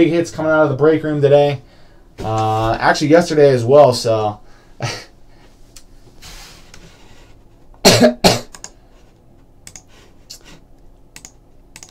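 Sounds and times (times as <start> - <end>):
man coughing: 7.8 - 8.5.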